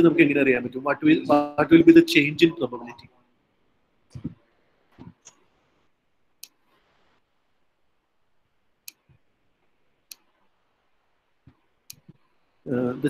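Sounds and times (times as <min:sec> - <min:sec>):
faint sharp clicks: 0:08.9 - 0:09.2.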